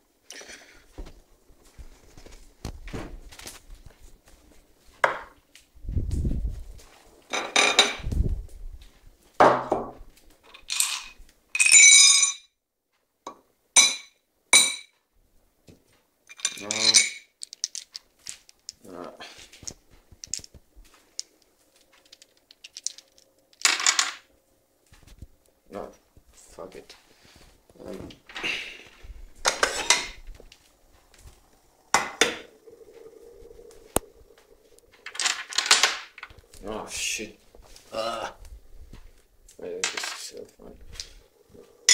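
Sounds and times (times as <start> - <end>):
dishware clinking and scraping: 7.3 - 8.0, 16.3 - 17.3, 29.4 - 30.2
faint steady hum: 13.2 - 41.9
hard objects clattering: 16.3 - 18.8, 19.4 - 24.3, 33.5 - 36.7, 39.8 - 41.9.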